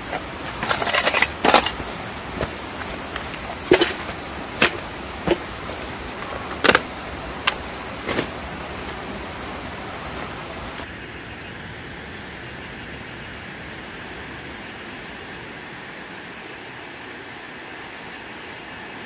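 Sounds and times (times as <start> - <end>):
camping gear rustling and knocking: 0.0 - 10.8
rushing mountain creek: 0.0 - 10.9.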